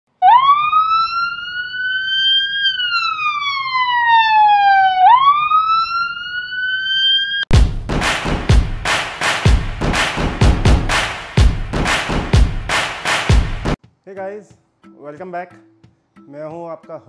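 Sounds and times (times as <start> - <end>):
wailing siren: 0.1 - 7.5
music with heavy beat: 7.5 - 13.9.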